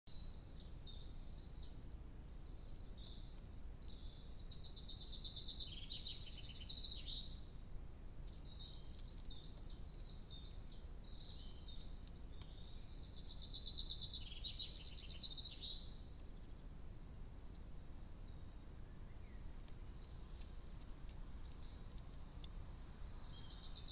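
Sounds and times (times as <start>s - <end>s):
songbird singing with trills: 0.1s - 16.7s, 17.5s - 23.9s
steady low rumble: 14.2s - 23.9s.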